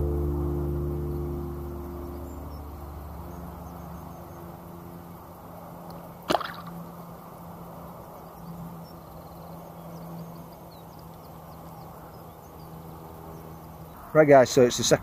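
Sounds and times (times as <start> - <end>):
low background noise: 0.0 - 15.0
fish tail splash: 6.3 - 6.8.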